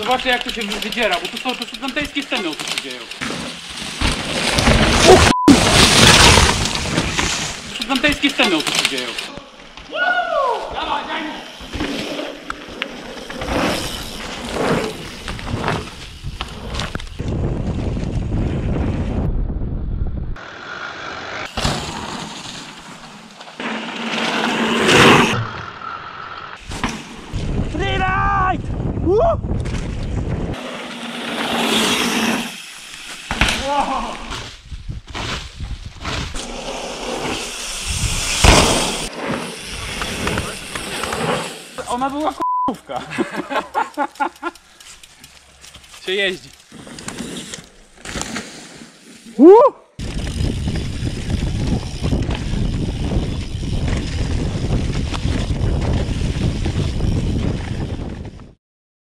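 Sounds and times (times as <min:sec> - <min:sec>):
sharp clicks and rattles: 0:00.0 - 0:03.2, 0:43.3 - 0:46.7
bike tyres skidding on dirt: 0:00.0 - 0:19.2, 0:20.4 - 0:28.1, 0:29.6 - 0:42.4, 0:44.8 - 0:58.5
wind and tyre rumble: 0:11.5 - 0:32.6, 0:33.3 - 0:41.8, 0:50.0 - 0:58.6
loud thump of bike landing: 0:33.2 - 0:36.4, 0:38.1 - 0:39.1.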